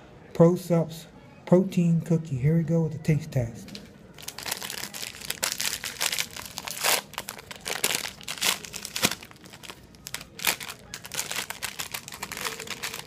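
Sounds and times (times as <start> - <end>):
plastic wrapper crinkling and tearing: 4.2 - 13.0.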